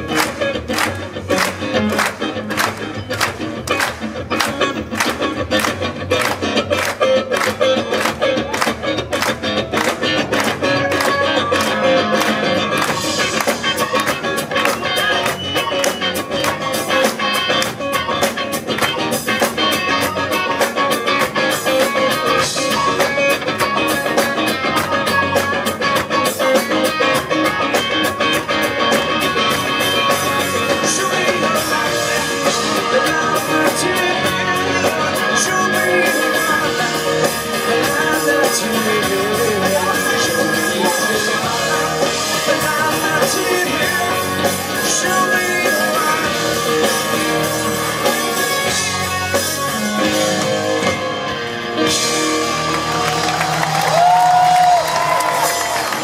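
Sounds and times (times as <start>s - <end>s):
drum kit: 0.0s - 56.0s
electric and acoustic guitars: 0.0s - 56.0s
man singing lead vocal: 28.6s - 50.9s.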